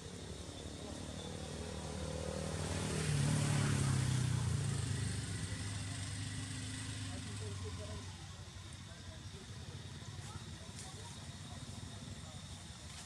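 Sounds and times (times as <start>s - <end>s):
vehicle engine passing: 0.4s - 9.0s.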